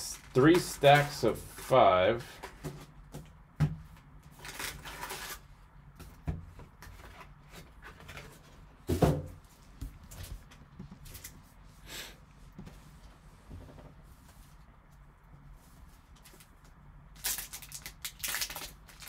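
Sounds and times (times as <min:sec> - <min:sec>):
card packs rustling: 0:17.2 - 0:19.0.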